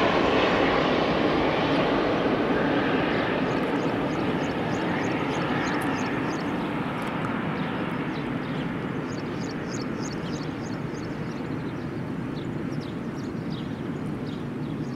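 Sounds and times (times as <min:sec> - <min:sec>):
jet engine noise: 0:00.0 - 0:14.9
birds chirping: 0:03.1 - 0:14.9.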